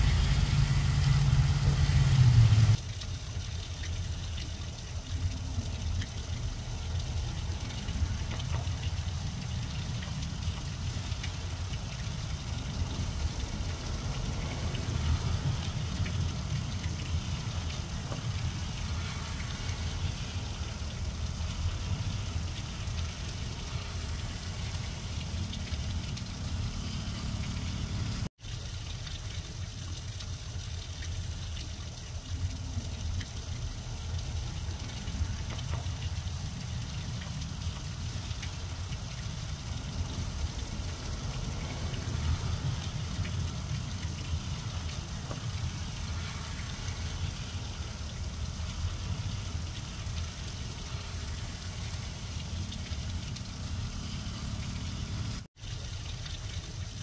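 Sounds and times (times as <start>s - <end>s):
heavy low rumble: 0.0s - 2.8s
low steady hum: 0.0s - 28.3s
rain falling on grass: 0.0s - 57.0s.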